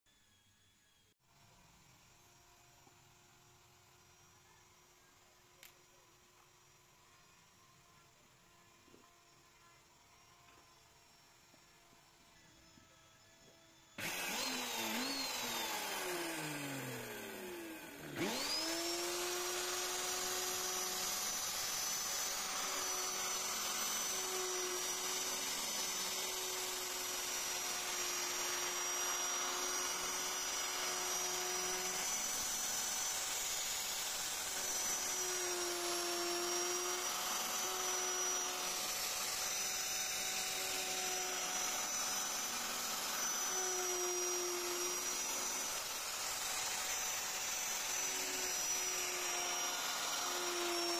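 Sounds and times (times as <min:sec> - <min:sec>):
electric router whining: 0:00.2 - 0:50.9
router bit cutting wood: 0:02.2 - 0:50.9.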